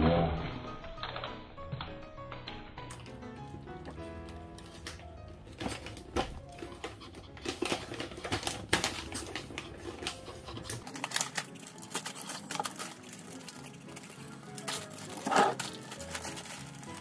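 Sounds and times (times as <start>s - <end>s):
plastic bag of pet food crinkling: 3.9s - 17.0s.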